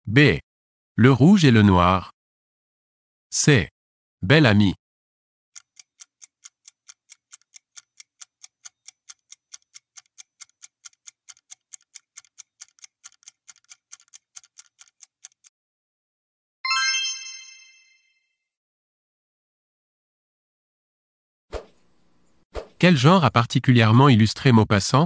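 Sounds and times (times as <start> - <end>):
clock-like timer ticking: 5.6 - 15.5
multi-tone chime: 16.6 - 18.3.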